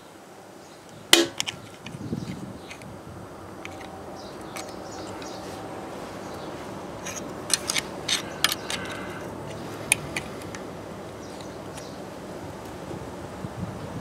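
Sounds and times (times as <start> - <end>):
background noise: 0.0 - 14.0
metal tool clicking and scraping: 1.2 - 2.9, 3.6 - 5.4, 7.0 - 10.6.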